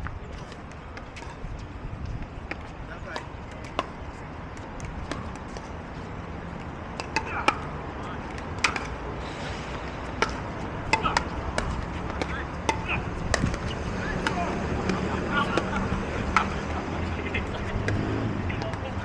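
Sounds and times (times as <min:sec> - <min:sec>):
paddles hitting plastic ball: 0:02.4 - 0:05.8, 0:06.5 - 0:09.0, 0:10.2 - 0:16.7.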